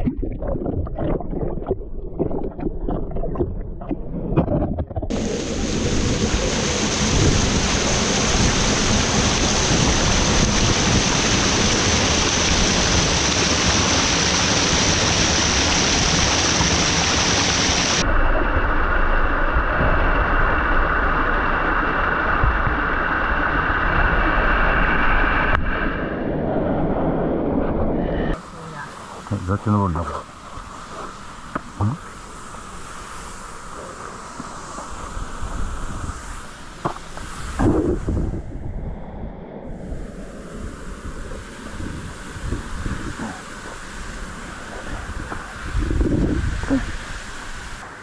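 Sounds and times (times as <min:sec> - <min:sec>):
rushing water: 0:00.0 - 0:18.4, 0:28.3 - 0:38.4, 0:39.7 - 0:48.0.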